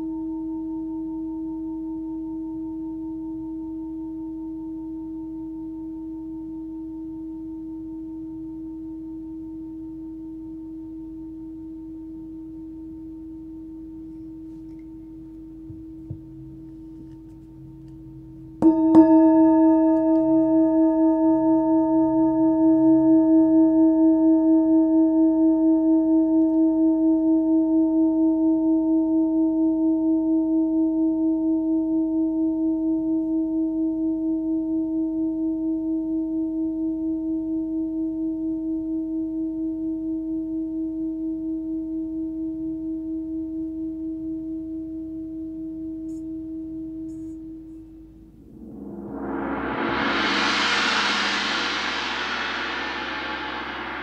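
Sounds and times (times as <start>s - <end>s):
singing bowl struck: 18.6s - 28.2s, 48.4s - 54.0s
singing bowl ringing: 18.6s - 28.9s.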